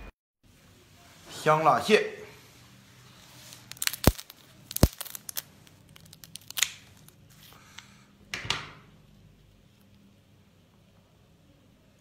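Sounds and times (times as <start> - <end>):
scissors cracking crab shell: 3.7 - 6.9.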